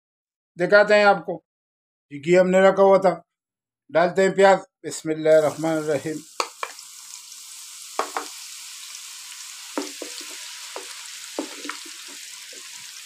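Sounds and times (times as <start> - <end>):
onions sizzling in pan: 5.3 - 13.0
spatula knocking against pan: 8.0 - 8.4, 9.8 - 12.2.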